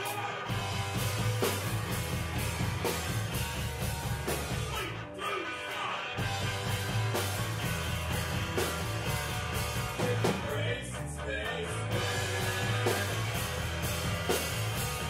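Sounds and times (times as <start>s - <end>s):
bass guitar: 0.0s - 15.0s
drum kit: 0.0s - 15.0s
electric guitar: 0.0s - 15.0s
man singing into a microphone: 10.0s - 13.0s.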